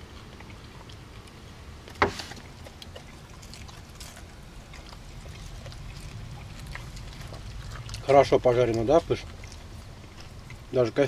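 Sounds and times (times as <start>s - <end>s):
low rumble: 4.3s - 10.8s.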